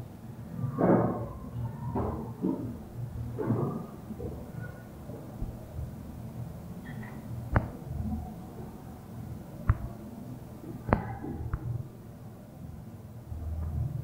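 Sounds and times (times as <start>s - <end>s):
low background noise: 0.0s - 14.0s
marker tapping on whiteboard: 7.5s - 7.8s, 9.6s - 9.9s, 10.9s - 11.7s.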